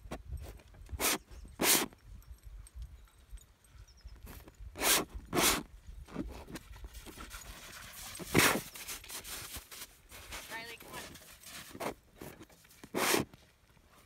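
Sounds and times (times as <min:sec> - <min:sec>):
palette knife scraping canvas: 0:01.0 - 0:01.9, 0:04.8 - 0:06.6, 0:08.2 - 0:10.4, 0:11.0 - 0:13.4.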